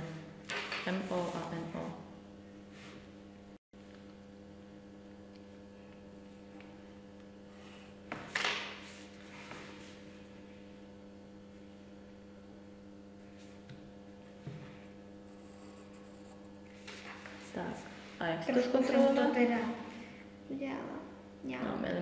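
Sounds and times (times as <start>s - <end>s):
electrical mains hum: 0.0s - 22.0s
pencil scraping paper: 15.3s - 17.4s.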